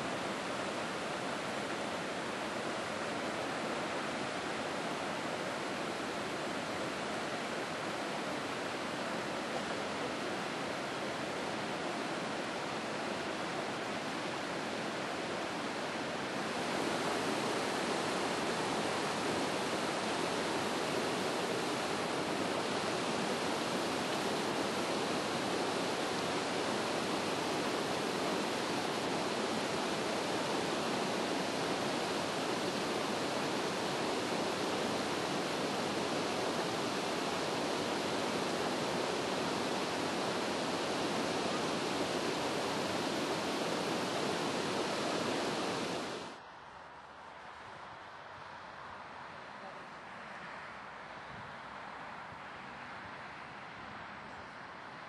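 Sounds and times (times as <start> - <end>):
waterfall rushing: 15.5 - 46.4.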